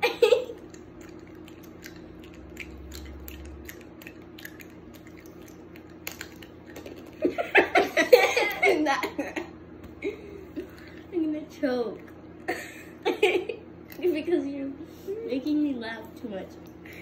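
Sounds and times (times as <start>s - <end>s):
laughter: 0.0s - 0.6s, 7.2s - 10.7s, 12.5s - 13.6s
faint steady hum: 0.0s - 17.0s
chewing and mouth clicks: 0.5s - 7.3s.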